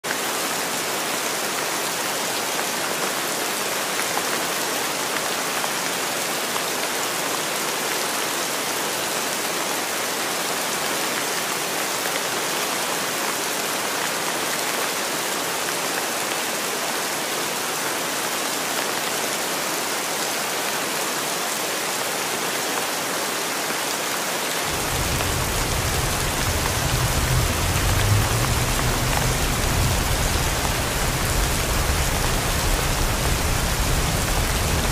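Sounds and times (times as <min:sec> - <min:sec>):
heavy rain on pavement and cars: 0:00.0 - 0:34.9
car road rumble: 0:24.7 - 0:34.9.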